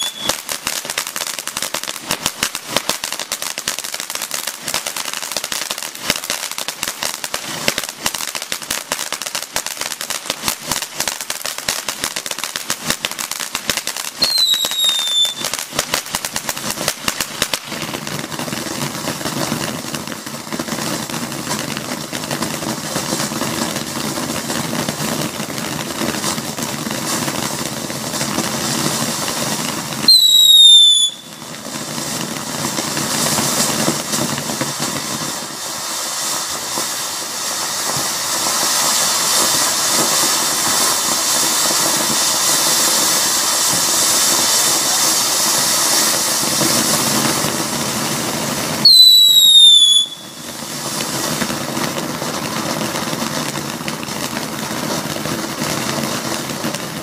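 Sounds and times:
shrill firework whistle: 0:00.0 - 0:00.9, 0:14.1 - 0:15.7, 0:30.0 - 0:32.2, 0:48.7 - 0:51.3
firework fountain hissing: 0:00.0 - 0:57.0.

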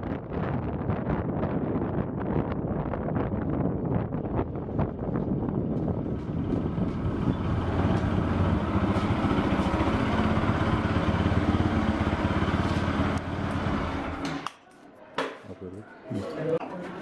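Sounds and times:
motorcycle engine running: 0:04.8 - 0:14.2.

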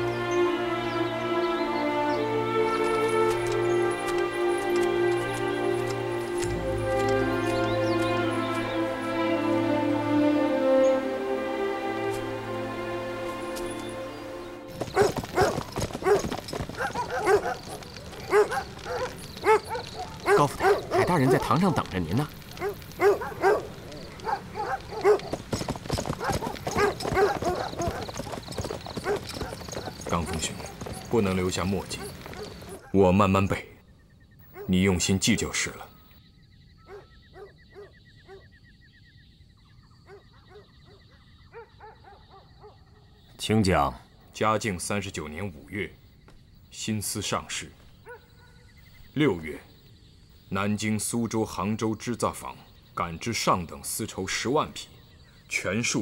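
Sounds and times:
dog barking: 0:14.9 - 0:22.0, 0:22.6 - 0:25.4, 0:26.2 - 0:28.1, 0:29.0 - 0:30.8, 0:32.0 - 0:33.0, 0:34.5 - 0:34.8, 0:36.8 - 0:38.5, 0:40.0 - 0:43.2, 0:48.0 - 0:48.7.

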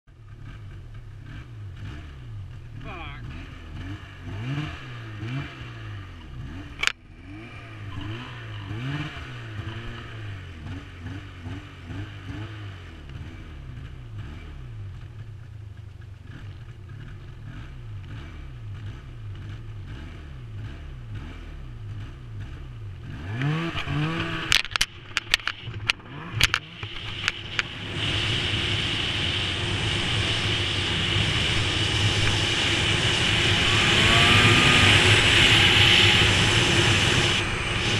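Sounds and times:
snowmobile engine: 0:00.2 - 0:37.9
rushing noise: 0:23.9 - 0:37.9.

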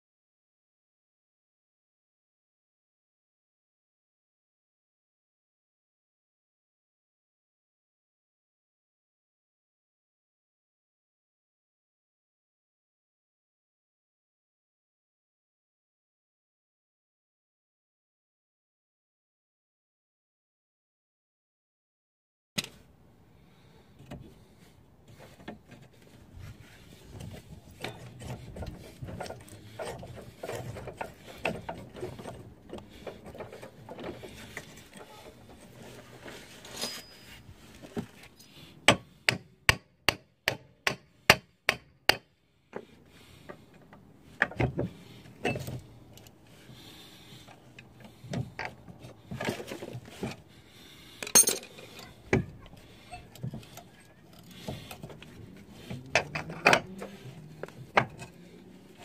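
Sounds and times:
metal parts scraping and clanking: 0:25.1 - 0:38.8, 0:51.1 - 0:59.0.

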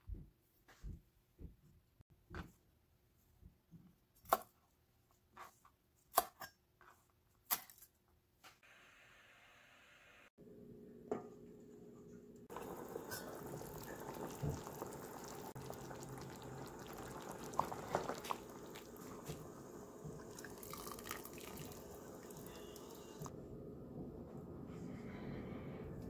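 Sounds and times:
water sloshing and dripping: 0:12.5 - 0:23.3.

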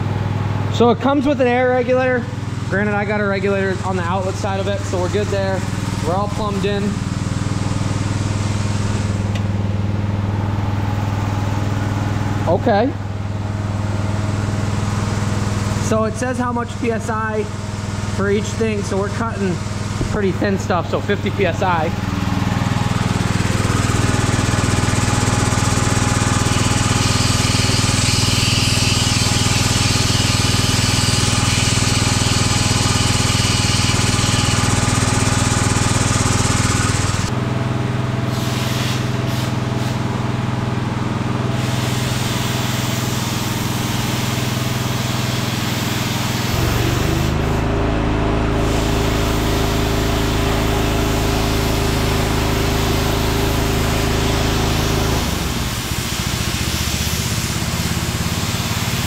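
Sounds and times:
deeper hum: 0:00.0 - 0:42.2
machine hum: 0:00.0 - 0:59.0
plasma cutter hissing: 0:38.3 - 0:40.0, 0:41.6 - 0:47.6, 0:48.6 - 0:50.3, 0:55.6 - 0:59.0.

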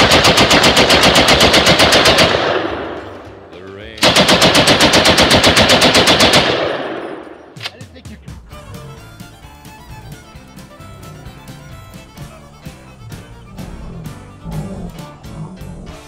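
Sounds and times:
machine gun firing bursts: 0:00.0 - 0:03.4, 0:04.0 - 0:07.6.

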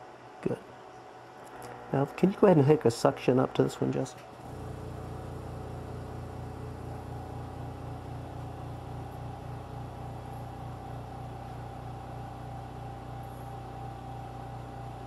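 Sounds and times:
suction pump humming and pulsing: 0:04.3 - 0:15.0.

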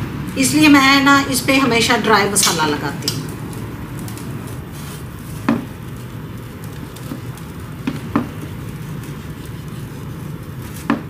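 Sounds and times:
hands rubbing spice onto fish: 0:05.8 - 0:10.8.

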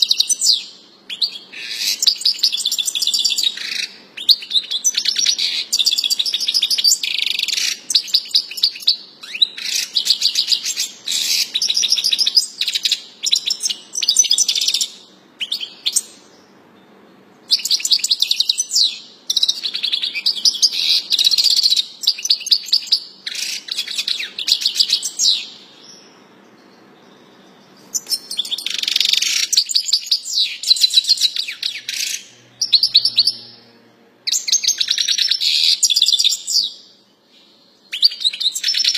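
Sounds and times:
goldfinch singing: 0:27.1 - 0:33.6.

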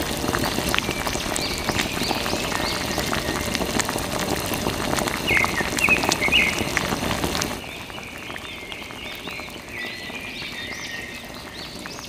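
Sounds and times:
hose water splashing on mud: 0:00.0 - 0:12.0.

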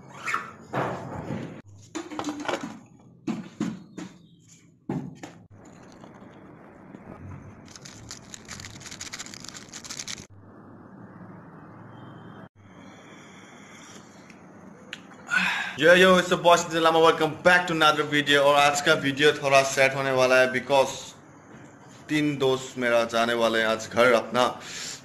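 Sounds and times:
foil sachet crinkling and tearing: 0:07.6 - 0:10.3.

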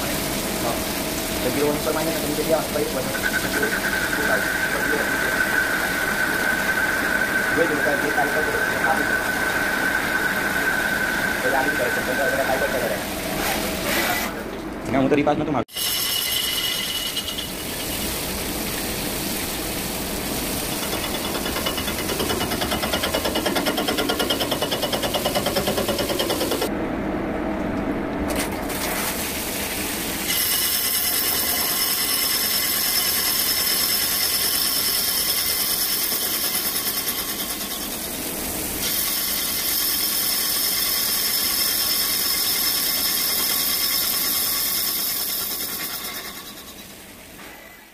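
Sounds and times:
coolant spray hiss: 0:00.0 - 0:14.4, 0:16.8 - 0:26.6
lathe machining whine: 0:01.8 - 0:13.2.

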